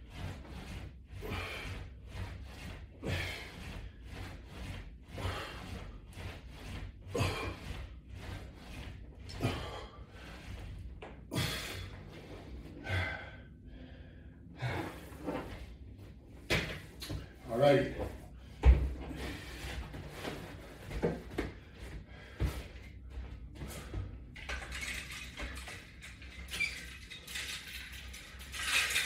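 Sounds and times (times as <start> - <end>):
wheels rubbing on rubber mat: 0.0 - 13.0, 14.6 - 29.0
hard breathing: 0.1 - 15.8, 18.0 - 24.4.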